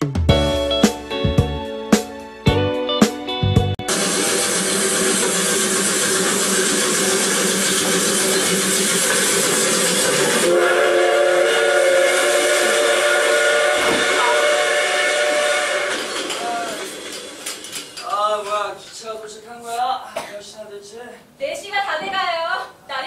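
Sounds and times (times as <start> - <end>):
steam train whistle: 3.9 - 17.2
steam hissing: 3.9 - 18.7.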